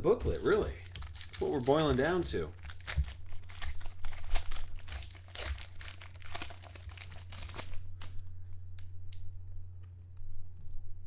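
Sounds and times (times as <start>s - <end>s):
low electrical hum: 0.0s - 11.0s
foil wrapper crinkling: 0.1s - 8.3s.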